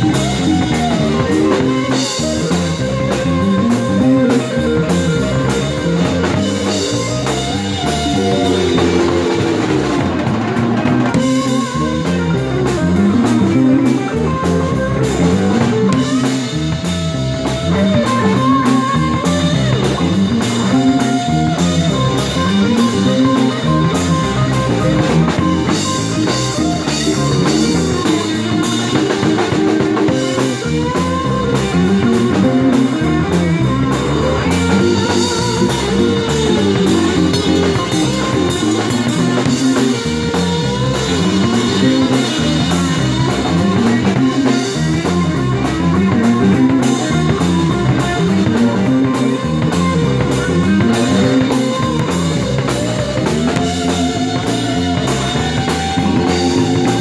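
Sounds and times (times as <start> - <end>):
bending electric guitar lead: 0.0 - 57.0
live blues band playing: 0.0 - 57.0.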